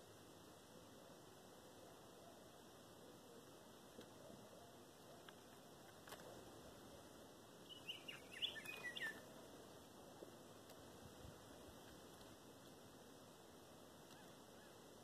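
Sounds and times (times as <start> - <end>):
bird chirping calls: 7.6 - 9.3.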